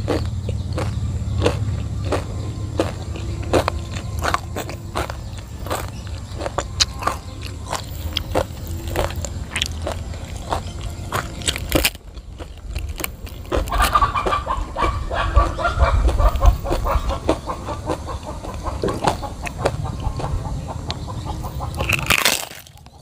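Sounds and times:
crisp chips crunching: 0.0 - 16.9, 21.7 - 23.0
chicken clucking: 0.0 - 23.0.

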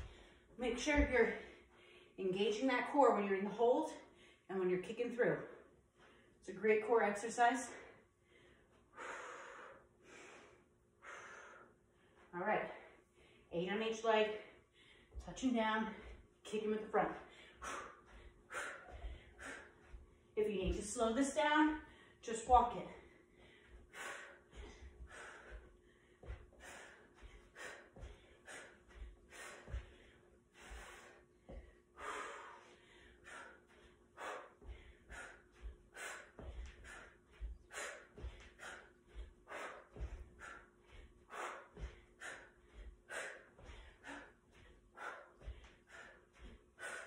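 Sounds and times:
woman breathing hard: 0.0 - 0.6, 1.3 - 2.2, 7.7 - 13.5, 14.3 - 16.4, 17.2 - 21.0, 21.8 - 22.2, 22.8 - 47.0
bare feet thudding on a rug: 0.0 - 1.5, 17.7 - 21.2, 34.2 - 42.0.

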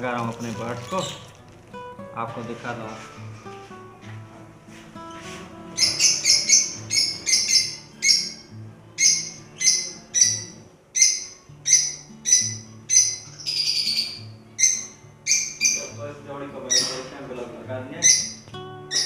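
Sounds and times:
lovebirds chirping: 0.0 - 1.5, 5.7 - 17.4, 18.0 - 19.0.

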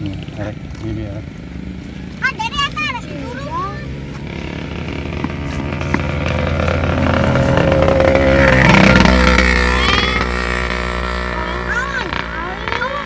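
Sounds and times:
motor running: 3.2 - 13.0.

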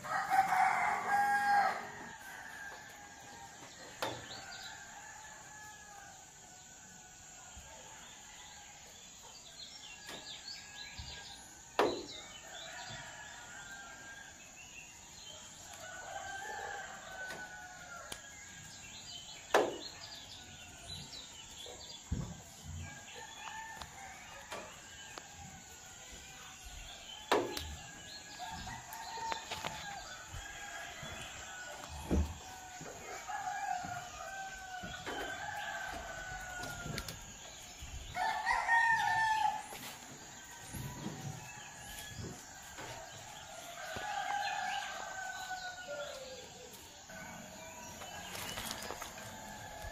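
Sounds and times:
rooster crowing: 0.0 - 3.3, 15.8 - 18.2, 28.3 - 37.3, 38.1 - 39.8, 40.4 - 49.9.

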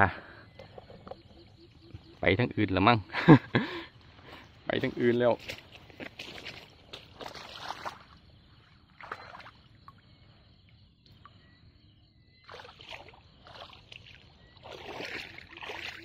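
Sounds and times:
wading steps sloshing in water: 4.0 - 10.1, 12.4 - 16.0.

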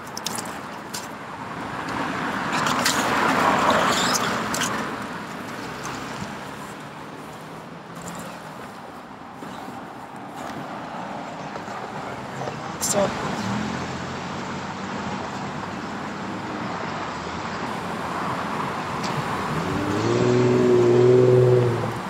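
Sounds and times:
car passing by: 9.3 - 22.0.

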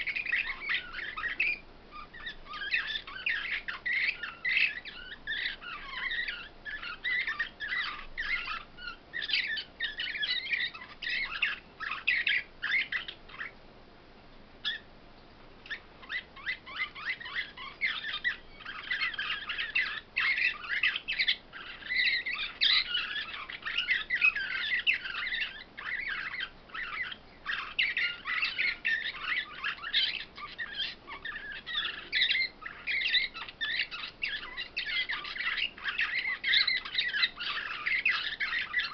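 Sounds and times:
songbirds twittering: 0.0 - 13.7, 14.6 - 38.9.

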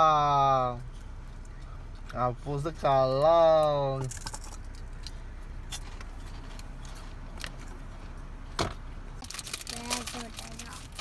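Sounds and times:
low hum inside car: 0.0 - 11.0
plastic snack bag crinkling: 9.2 - 11.0.

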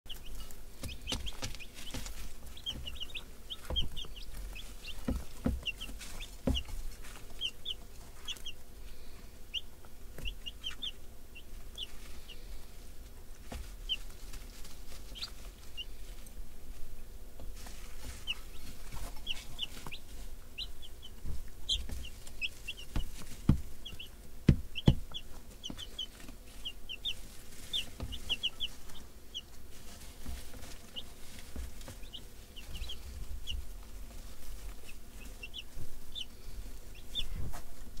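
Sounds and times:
baby chicks peeping: 0.0 - 38.0
chicks rustling: 0.0 - 38.0
sharp knocks: 24.4 - 25.2.

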